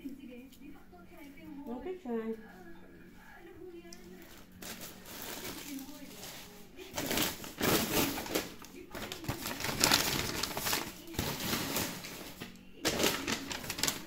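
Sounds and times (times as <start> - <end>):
wrapping paper rustling: 3.9 - 14.0.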